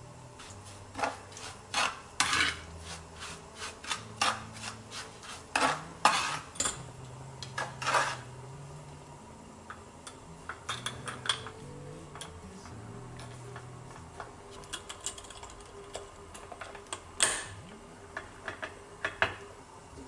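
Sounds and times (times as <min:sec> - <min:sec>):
metal spoon scraping a plate: 0:01.0 - 0:06.8.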